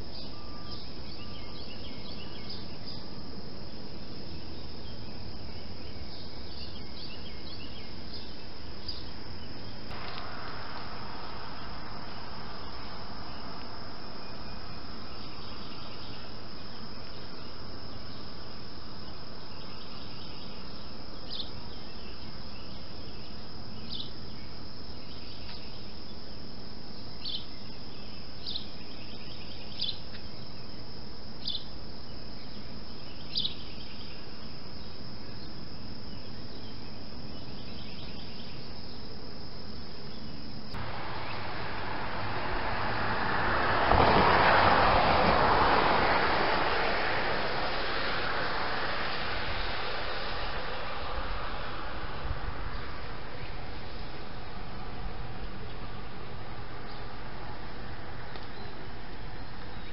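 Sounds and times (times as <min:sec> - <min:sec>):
insects trilling: 0:00.0 - 0:59.9
steady hiss: 0:00.0 - 0:59.9
loud rushing noise: 0:09.9 - 0:14.9, 0:40.8 - 0:55.4.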